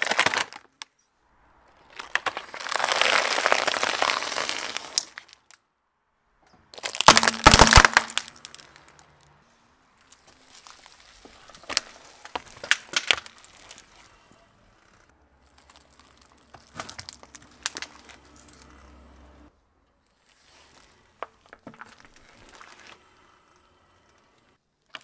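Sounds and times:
cardboard box crunching: 0.0s - 0.6s, 1.9s - 5.3s, 6.8s - 8.7s, 15.4s - 18.7s
plastic eggs cracking: 0.0s - 0.9s, 1.9s - 5.6s, 6.7s - 9.1s, 10.1s - 13.8s, 15.4s - 18.4s.

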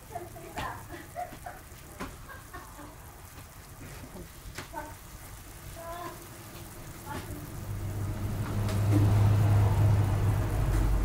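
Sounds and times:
sauce bubbling: 0.0s - 11.0s
low hum: 6.2s - 11.0s.

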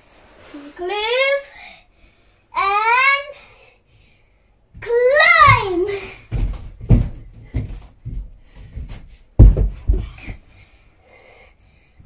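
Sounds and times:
hands and feet thumping on wood: 4.8s - 10.5s.

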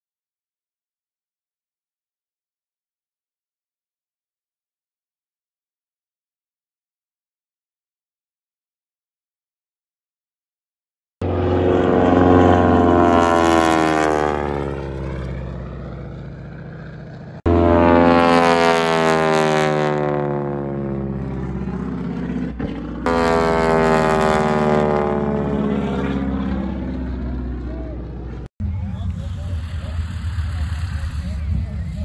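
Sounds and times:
propeller plane passing overhead: 11.2s - 32.0s.

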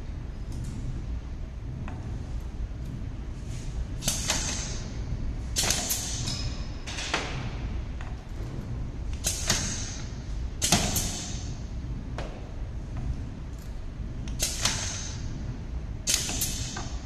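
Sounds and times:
compressed air hissing bursts: 9.2s - 11.5s.

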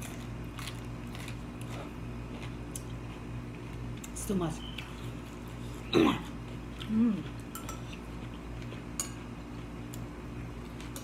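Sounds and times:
spoons clinking against bowls: 7.5s - 8.0s, 9.0s - 9.3s.

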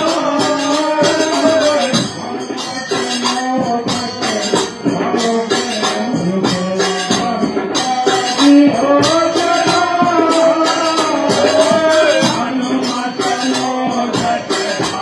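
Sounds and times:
dholak drumming: 0.0s - 15.0s
jingling hand percussion: 0.0s - 15.0s
man singing: 0.0s - 15.0s.

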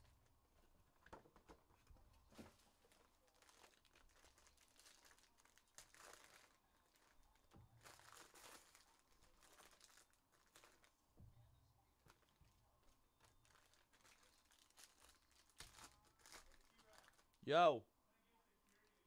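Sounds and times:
foil wrapper crinkling and tearing: 2.4s - 11.0s, 12.1s - 17.4s.

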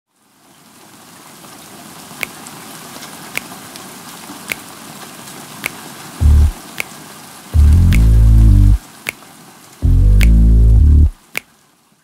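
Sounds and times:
soft rain-like hiss: 0.1s - 12.0s
water dripping: 5.6s - 11.5s.

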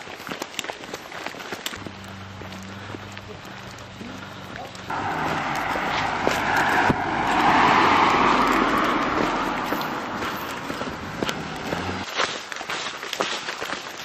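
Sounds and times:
footsteps on dirt path: 0.0s - 14.0s
car passing by: 4.6s - 12.1s.

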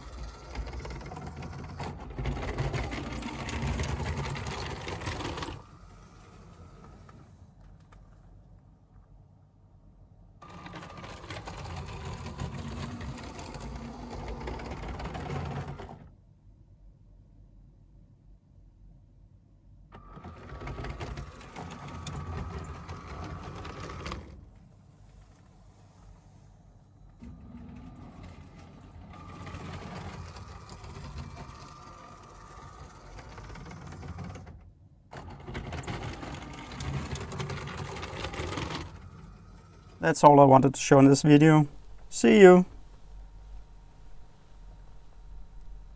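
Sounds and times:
train clicking and rattling on track: 0.0s - 5.6s, 10.4s - 16.0s, 27.4s - 34.4s, 35.2s - 39.0s
toy train motor whine: 0.0s - 7.2s, 10.4s - 16.1s, 20.0s - 24.4s, 27.2s - 34.5s, 35.2s - 40.1s
wheels rumbling on plastic rails: 0.0s - 8.0s, 10.4s - 16.2s, 19.9s - 26.2s, 27.0s - 45.9s.

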